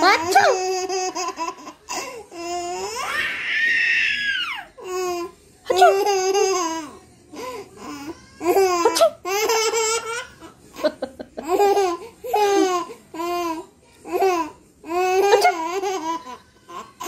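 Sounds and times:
baby laughing: 0.2s - 3.1s, 8.4s - 13.3s, 14.1s - 16.9s.

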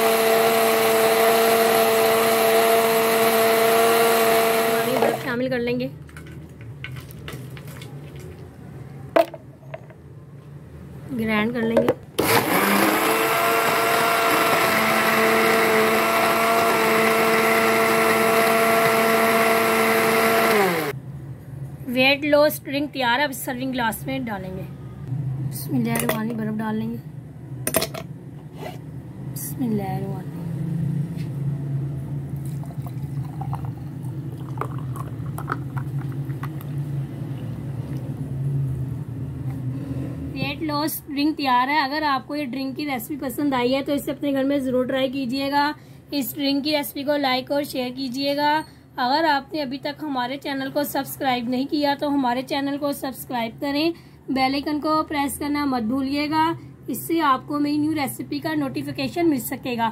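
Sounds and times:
blender motor whining: 0.0s - 5.3s, 12.2s - 21.0s
juice pouring over ice: 32.4s - 36.6s.

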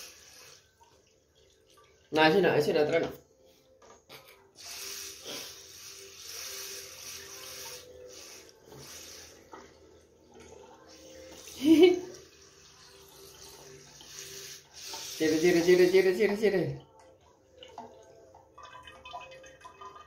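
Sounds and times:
tap water running into bowl: 6.0s - 20.0s.

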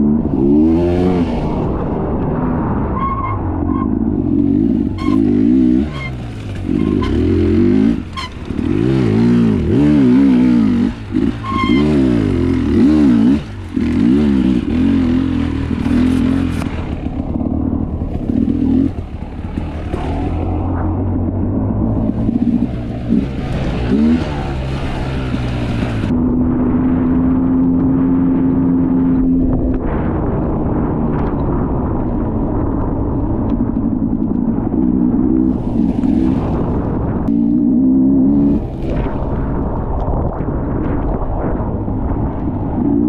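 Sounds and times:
dirt bike engine revving: 0.0s - 2.0s, 4.2s - 26.1s, 35.1s - 39.2s.

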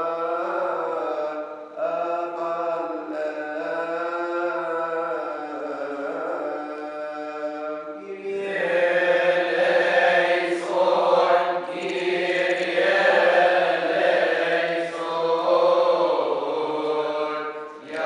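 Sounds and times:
voices chanting: 8.4s - 18.0s.

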